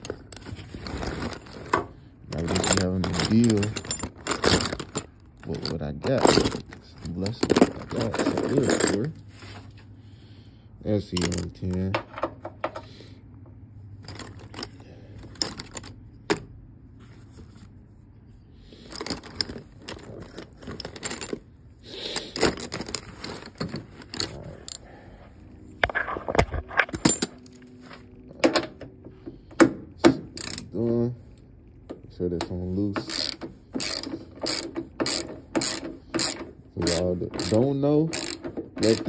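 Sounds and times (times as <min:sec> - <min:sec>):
metal tools clinking in a bag: 0:00.0 - 0:09.3, 0:11.0 - 0:11.9, 0:14.0 - 0:16.0, 0:18.7 - 0:24.8, 0:26.7 - 0:28.0, 0:33.0 - 0:39.0
hand ratchet clicking: 0:30.3 - 0:30.7, 0:33.0 - 0:39.0.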